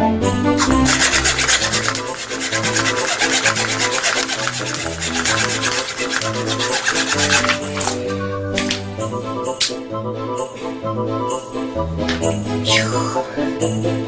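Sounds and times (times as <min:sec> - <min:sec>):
background music: 0:00.0 - 0:14.0
hacksaw sawing wood: 0:00.5 - 0:08.2.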